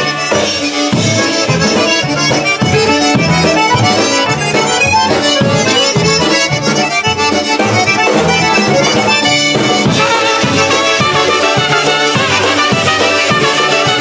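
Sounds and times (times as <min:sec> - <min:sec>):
accordion and concertina tune: 0:00.0 - 0:14.0
polka band playing: 0:00.0 - 0:14.0.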